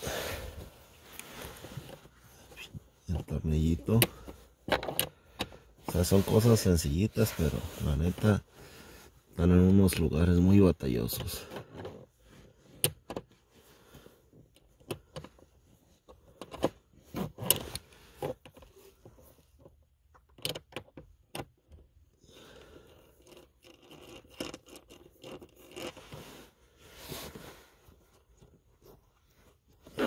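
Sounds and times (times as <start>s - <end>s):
metallic socket clicks and scrapes: 23.0s - 26.0s.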